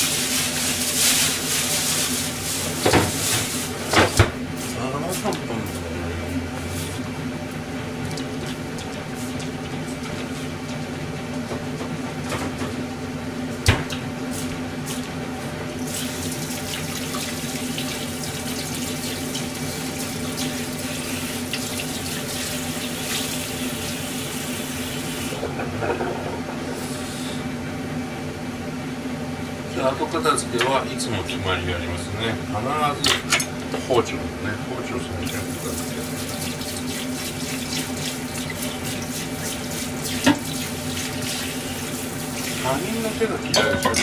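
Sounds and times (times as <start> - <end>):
steady low hum: 2.1 - 21.9, 25.3 - 44.0
dishes clinking: 43.4 - 44.0.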